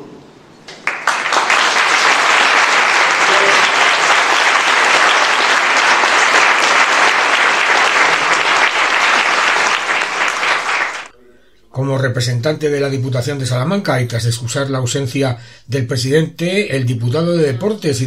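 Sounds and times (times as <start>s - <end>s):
audience applauding: 0.7s - 11.1s.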